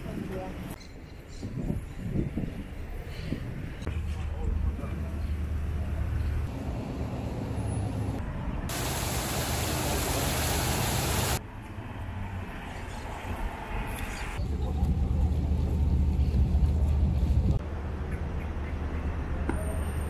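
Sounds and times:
road traffic rumble: 0:03.9 - 0:20.0
loud hiss: 0:08.7 - 0:11.4.

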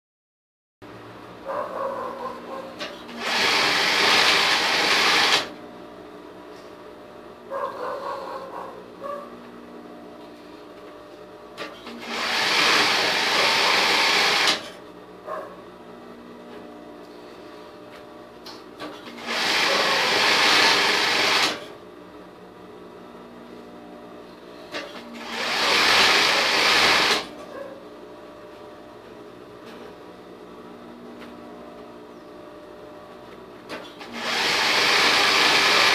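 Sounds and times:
sewing machine stitching: 0:02.8 - 0:05.6, 0:11.6 - 0:14.8, 0:18.8 - 0:21.8, 0:24.8 - 0:27.4, 0:33.7 - 0:35.9.

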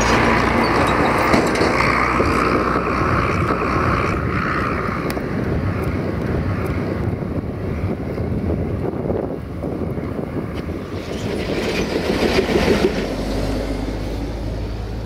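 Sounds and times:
tractor diesel engine running: 0:00.0 - 0:15.0
wind on microphone: 0:00.0 - 0:15.0.

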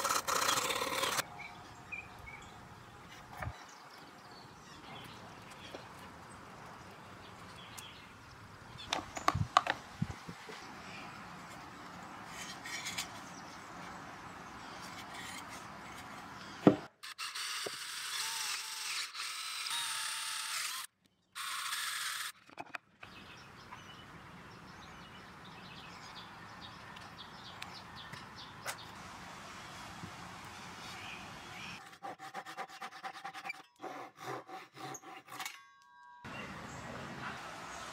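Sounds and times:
cordless drill boring into wood: 0:00.0 - 0:01.2, 0:17.0 - 0:22.4
wood knocking and tapping: 0:16.6 - 0:16.9.

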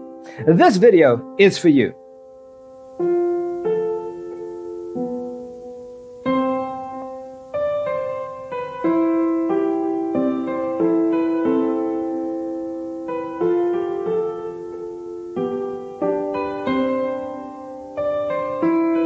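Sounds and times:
gentle piano chords: 0:00.0 - 0:19.0.

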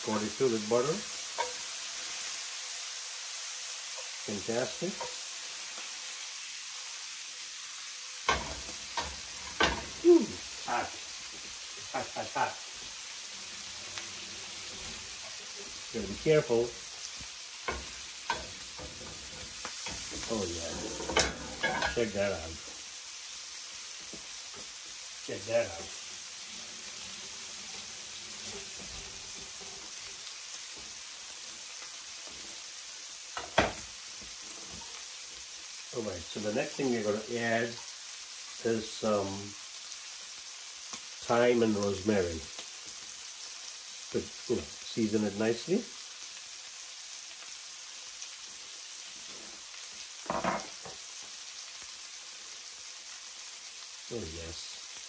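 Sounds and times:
steaks sizzling in butter: 0:00.0 - 0:55.0.

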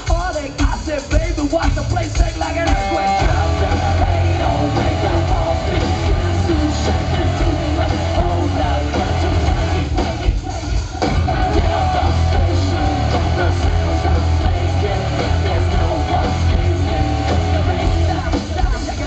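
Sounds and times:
drums: 0:00.0 - 0:19.0
heavy bass: 0:00.0 - 0:19.0
person singing: 0:00.0 - 0:19.0
distorted electric guitar: 0:02.2 - 0:19.0.

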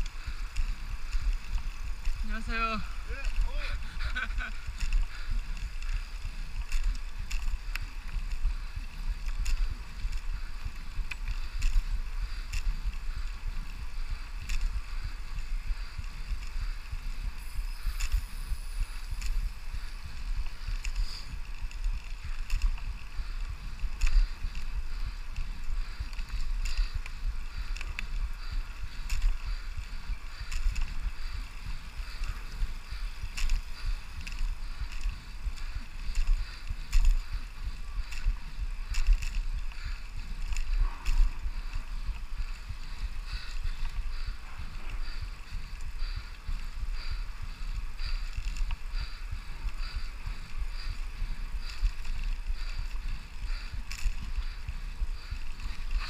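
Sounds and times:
bicycle clicks and rattles: 0:00.0 - 0:56.0
wind buffeting microphone: 0:00.0 - 0:56.0
tyres hissing on asphalt: 0:11.3 - 0:21.6.

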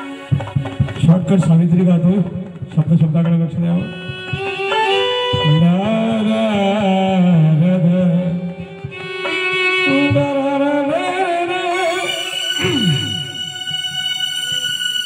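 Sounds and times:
instrumental accompaniment: 0:00.0 - 0:15.0
man singing into a microphone: 0:05.3 - 0:13.4.

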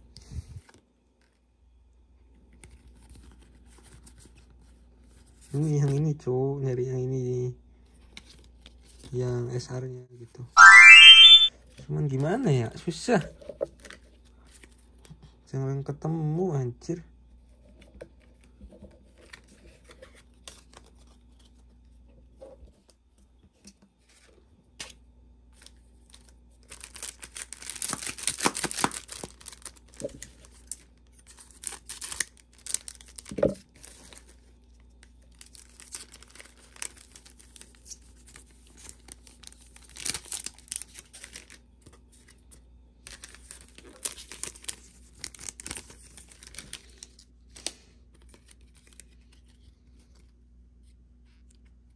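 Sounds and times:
packs being torn open: 0:26.1 - 0:34.3, 0:35.3 - 0:41.6, 0:43.1 - 0:49.5
wrappers crinkling: 0:26.6 - 0:34.4, 0:35.3 - 0:41.6, 0:43.1 - 0:47.2.

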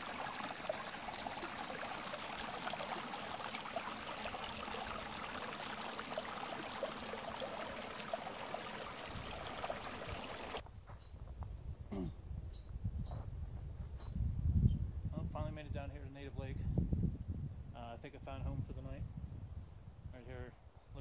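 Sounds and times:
stream running: 0:00.0 - 0:10.6.

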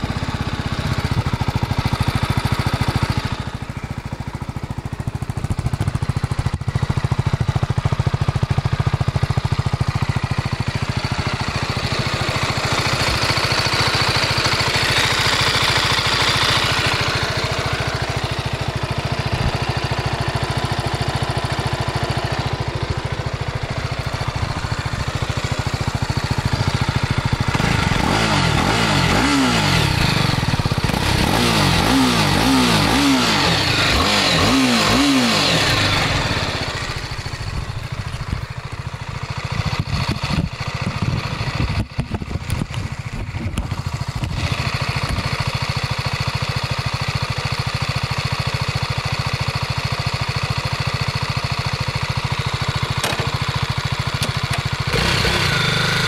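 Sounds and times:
motorcycle engine idling: 0:00.0 - 0:56.0
engine revving throttle blips: 0:26.4 - 0:37.5, 0:54.2 - 0:56.0.

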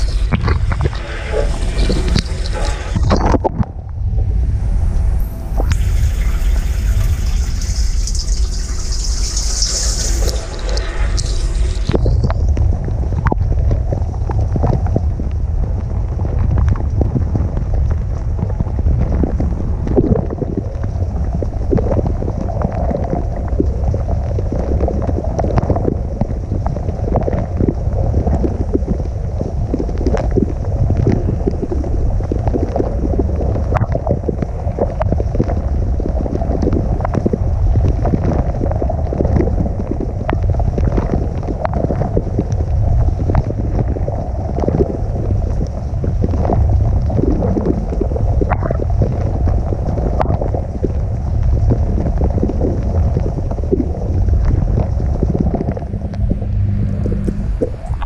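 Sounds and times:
dishwasher water rushing and spattering: 0:05.2 - 0:12.1
water drops ticking: 0:05.2 - 0:13.4.

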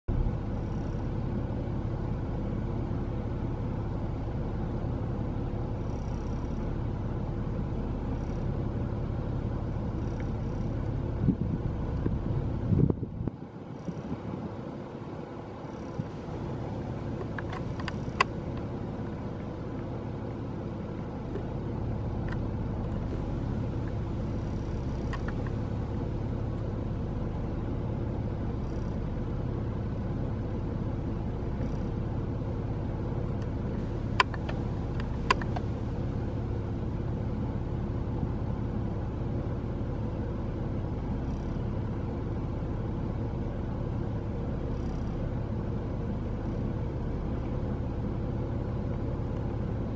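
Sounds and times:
steady low rumble: 0:00.1 - 0:49.9
sharp clicks: 0:17.0 - 0:18.7, 0:22.2 - 0:25.6, 0:33.4 - 0:35.8.

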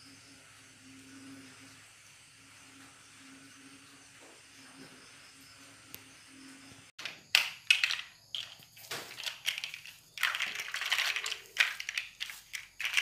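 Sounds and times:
rustling and crackling handling noise: 0:07.0 - 0:13.0.

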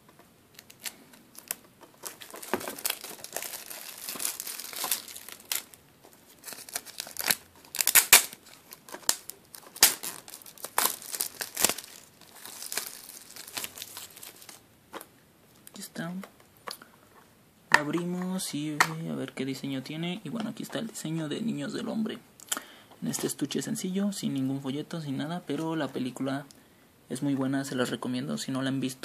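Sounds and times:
plastic wrap crinkling: 0:00.5 - 0:15.1.

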